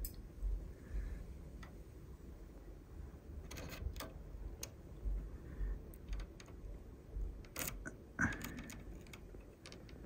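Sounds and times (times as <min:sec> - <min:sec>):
metal tweezers clicking on wires: 0:07.3 - 0:10.0.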